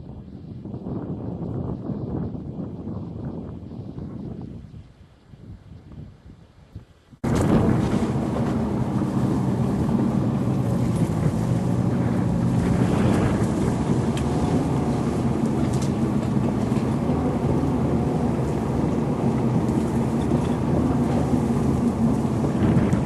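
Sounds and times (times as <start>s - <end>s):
vehicle engine running: 7.2s - 23.0s.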